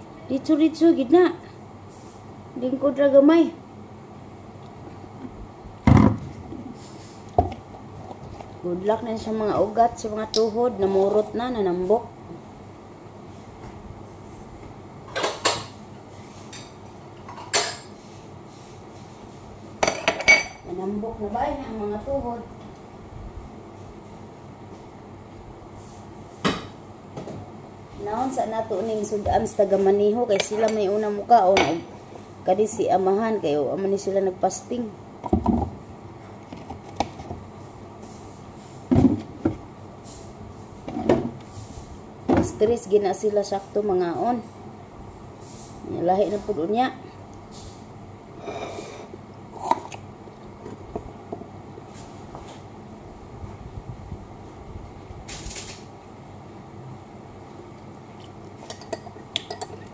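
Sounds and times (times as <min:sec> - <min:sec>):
dishes and utensils clinking: 0:58.6 - 0:59.9.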